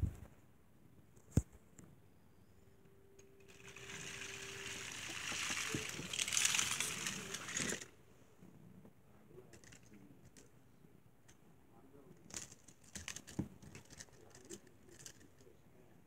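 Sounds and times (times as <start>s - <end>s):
toy train click: 3.5s - 7.9s
toy trains scraping on carpet: 3.5s - 7.9s.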